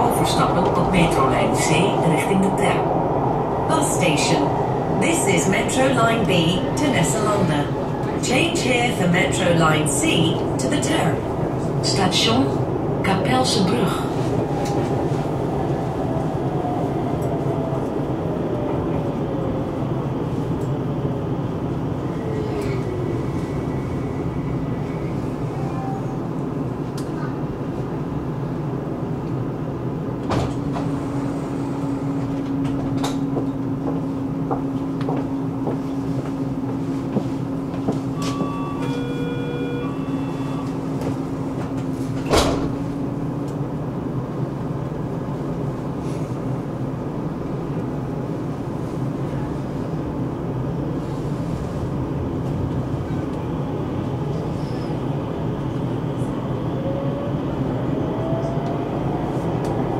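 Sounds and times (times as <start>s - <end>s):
train rumble and hum: 0.0s - 59.9s
train rising whine: 38.0s - 41.8s
electronic door-warning beeps: 38.2s - 40.7s.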